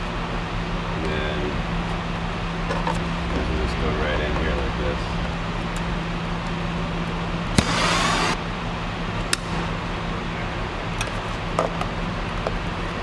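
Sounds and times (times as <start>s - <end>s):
low machine hum: 0.0s - 13.0s
hiss burst: 7.5s - 8.4s.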